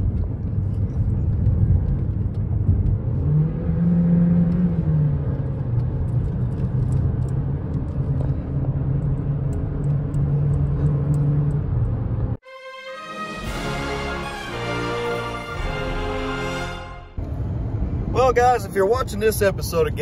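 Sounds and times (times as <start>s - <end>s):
car engine drone accelerating: 0.0s - 12.4s.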